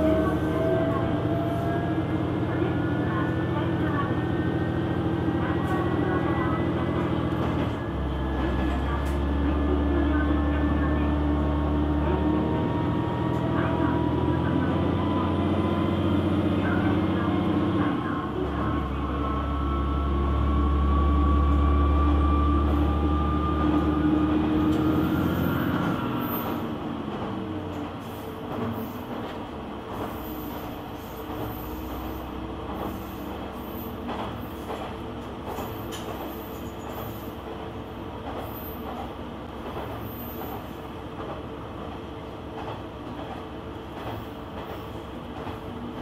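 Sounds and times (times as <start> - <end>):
train wheels clicking on rails: 24.6 - 46.0.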